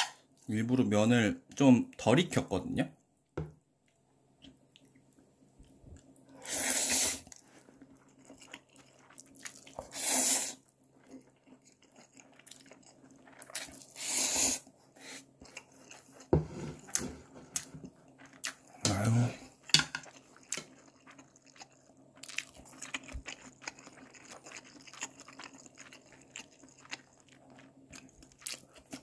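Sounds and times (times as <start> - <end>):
quiet chewing: 3.8 - 6.4, 7.2 - 29.0
noodles being slurped: 6.4 - 16.2.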